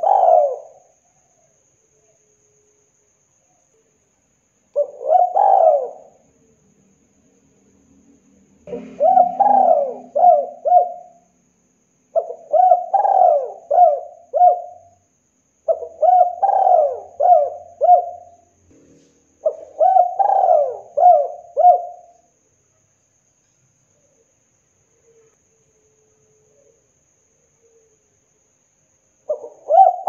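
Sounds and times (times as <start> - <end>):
dove cooing: 0.0 - 0.9, 4.8 - 6.2, 8.7 - 11.3, 12.2 - 15.0, 15.7 - 18.4, 19.4 - 22.2, 29.3 - 30.0.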